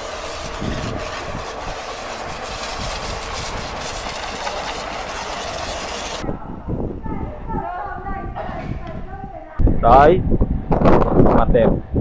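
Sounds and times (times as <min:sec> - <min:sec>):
sawmill running: 0:00.0 - 0:06.2.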